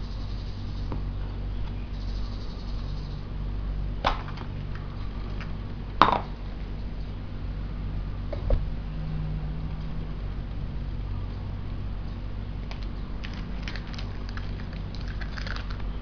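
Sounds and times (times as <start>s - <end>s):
steady low hum: 0.0s - 16.0s
plastic capsule cracking open: 12.6s - 15.8s.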